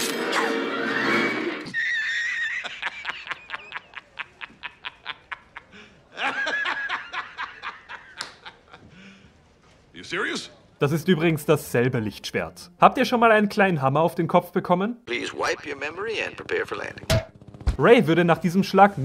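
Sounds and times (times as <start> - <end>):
man laughing hard: 1.7 - 8.9.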